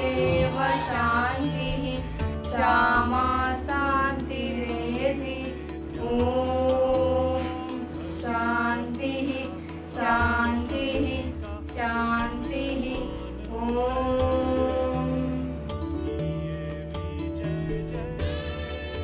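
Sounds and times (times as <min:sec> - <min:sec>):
children singing a prayer chant: 0:00.0 - 0:05.4
sustained accompaniment: 0:00.0 - 0:19.0.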